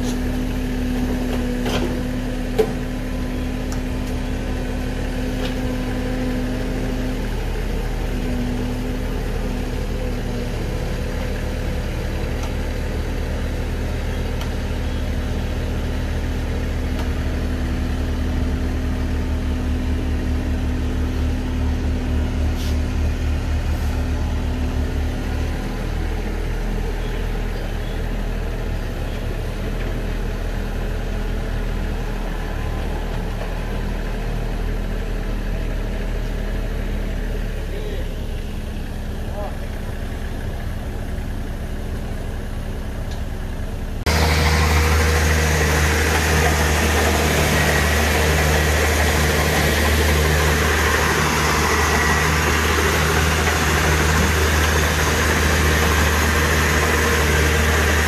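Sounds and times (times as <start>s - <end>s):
diesel engine idling: 0.0s - 58.0s.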